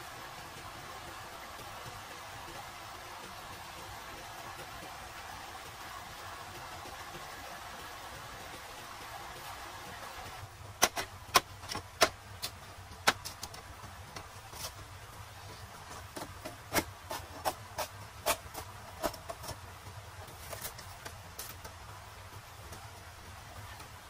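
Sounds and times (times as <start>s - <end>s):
steady hiss: 0.0s - 24.0s
sharp knocks and clicks: 10.8s - 14.7s.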